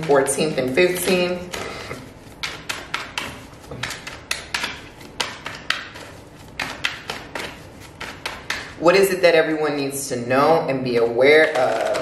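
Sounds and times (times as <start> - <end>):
cards shuffled by hand: 0.0 - 8.8, 11.4 - 12.0.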